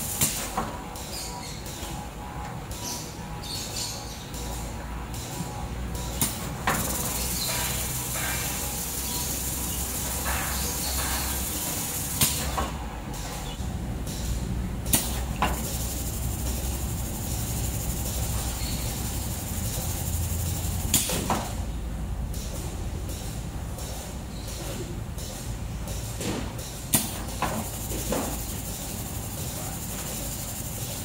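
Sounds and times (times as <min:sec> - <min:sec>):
machine hum with hiss: 0:00.0 - 0:31.0
sharp machine clicks: 0:04.4 - 0:12.6, 0:13.5 - 0:21.4, 0:25.2 - 0:31.0.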